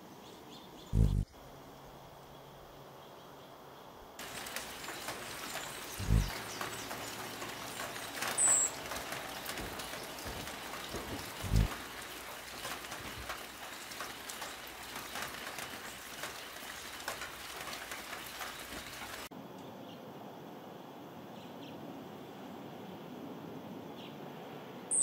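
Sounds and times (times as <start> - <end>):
steady outdoor hiss: 0.0 - 25.0
faint scattered ticks: 0.8 - 1.5, 4.2 - 19.7.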